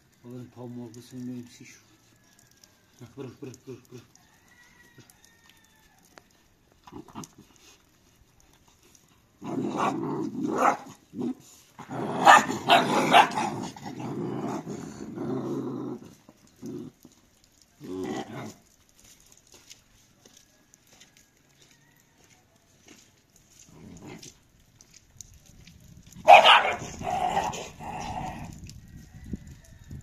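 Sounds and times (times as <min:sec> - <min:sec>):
puppies growling: 0:09.4 - 0:18.6, 0:26.3 - 0:28.6.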